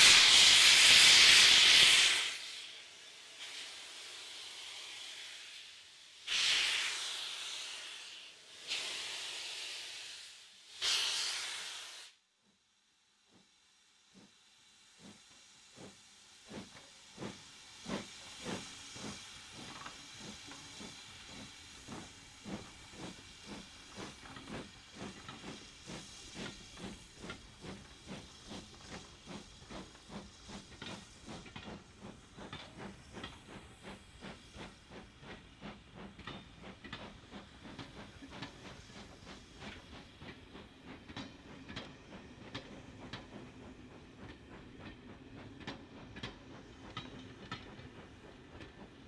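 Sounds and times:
steam hiss: 0:00.0 - 0:12.2, 0:13.1 - 0:49.0
rhythmic locomotive beats: 0:13.2 - 0:49.0.

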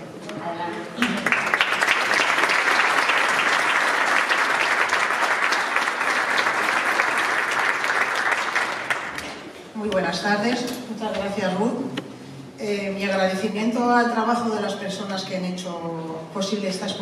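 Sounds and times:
audience applauding: 0:01.0 - 0:09.6.

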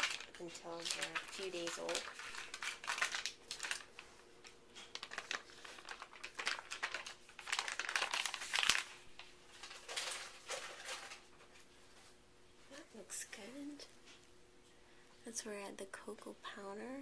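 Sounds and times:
plastic liner crinkling: 0:00.0 - 0:12.2.

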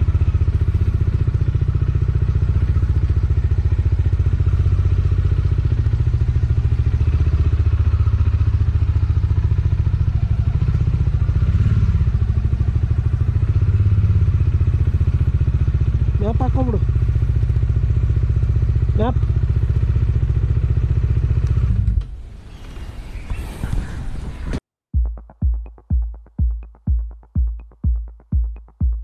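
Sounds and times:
motorcycle engine idling: 0:00.0 - 0:21.8.

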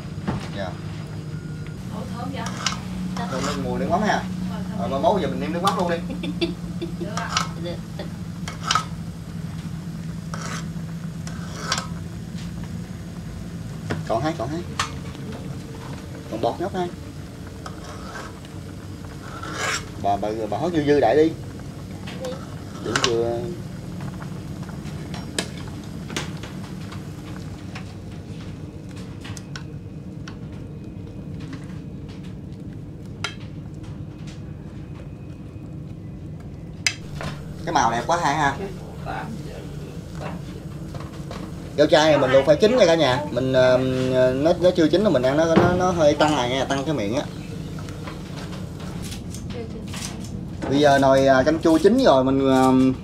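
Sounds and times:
steady low hum: 0:00.0 - 0:53.0
utensil scraping cooking pot: 0:02.4 - 0:05.8, 0:06.8 - 0:09.0, 0:10.0 - 0:12.0, 0:17.5 - 0:20.5.

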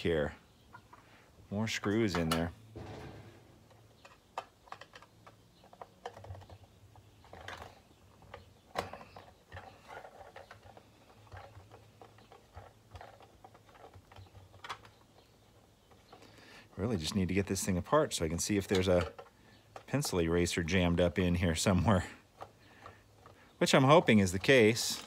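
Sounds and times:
plastic shell handled: 0:01.9 - 0:16.4, 0:17.0 - 0:20.6.

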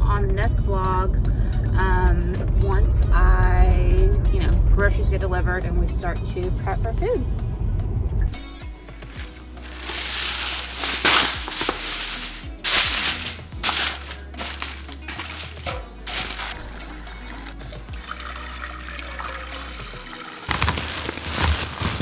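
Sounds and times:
background music with bass line: 0:00.0 - 0:21.8
aluminium foil crinkling: 0:09.1 - 0:16.8, 0:20.5 - 0:22.0
tap water running into saucepan: 0:09.4 - 0:20.9.

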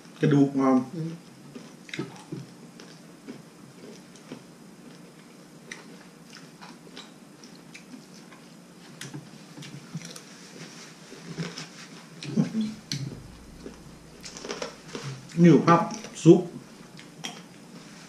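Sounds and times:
person chewing: 0:01.5 - 0:15.3.

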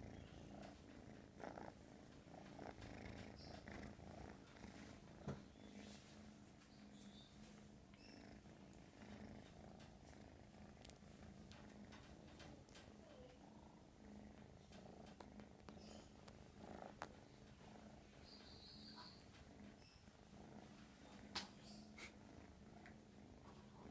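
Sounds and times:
kitten purring: 0:00.0 - 0:23.9
faint clicks: 0:07.9 - 0:13.4.

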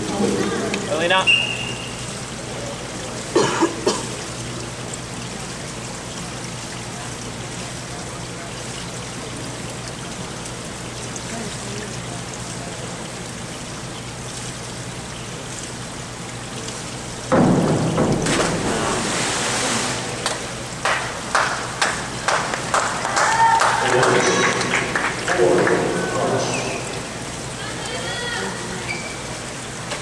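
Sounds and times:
diver splashing into water: 0:17.4 - 0:20.6
pool water rushing hiss: 0:17.5 - 0:23.0.

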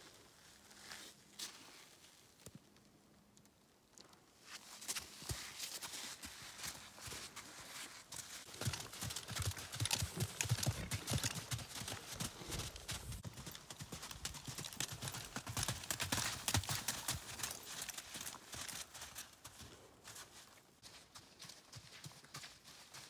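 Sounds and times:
horse hoofbeats on sand: 0:04.9 - 0:23.0.

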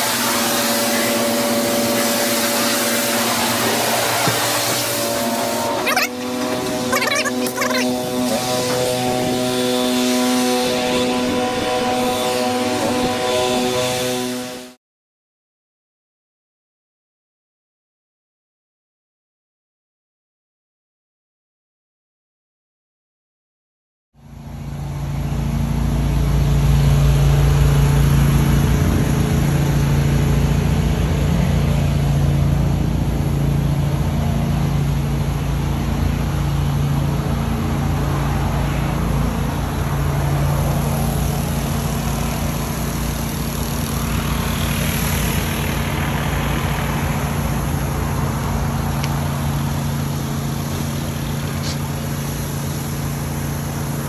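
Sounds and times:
water spray hissing on concrete: 0:00.0 - 0:09.8, 0:39.8 - 0:54.0
pressure washer engine running: 0:00.0 - 0:14.8, 0:24.2 - 0:54.0.

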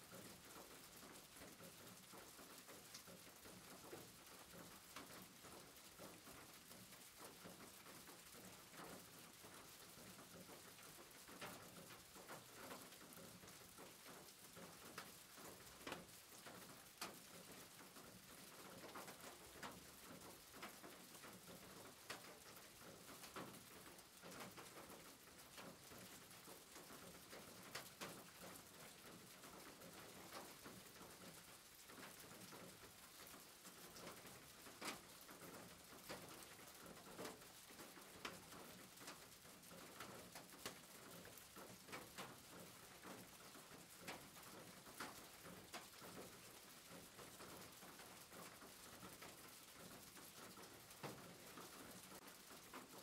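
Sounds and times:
faint rain on a roof: 0:00.0 - 0:53.0
raindrop taps: 0:00.1 - 0:53.0.

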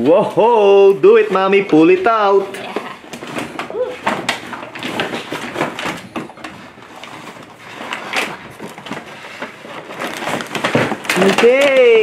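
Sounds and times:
cardboard packaging rustling: 0:00.6 - 0:12.0.

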